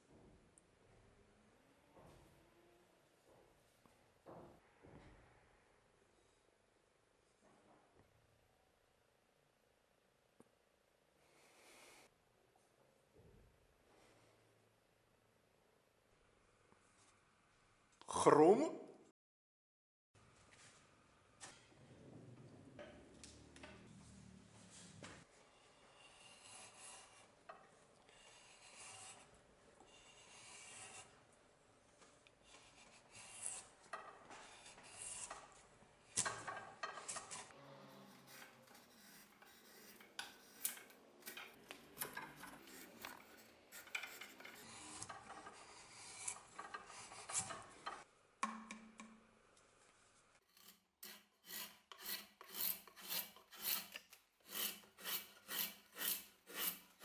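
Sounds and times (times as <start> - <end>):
drawknife scraping wood: 25.6 - 31.2, 32.4 - 35.6, 36.2 - 48.1, 50.5 - 57.0.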